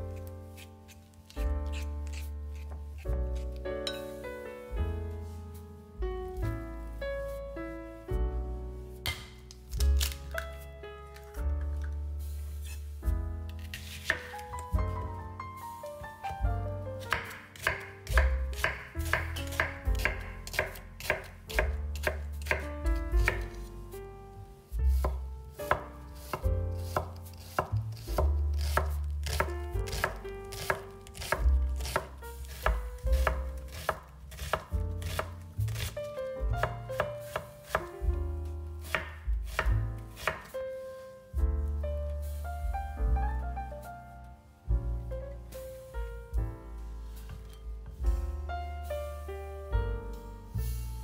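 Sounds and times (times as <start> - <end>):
knife chopping food: 13.7 - 14.4, 17.0 - 23.6, 24.9 - 36.0, 36.6 - 37.9, 38.8 - 40.6.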